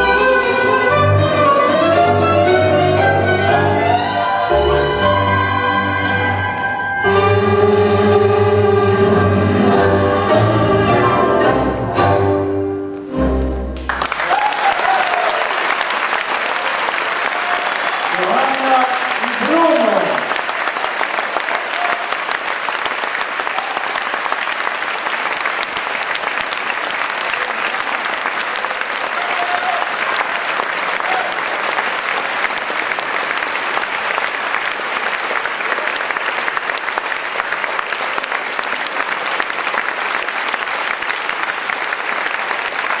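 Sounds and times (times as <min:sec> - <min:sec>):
audience applauding: 0:13.8 - 0:43.0.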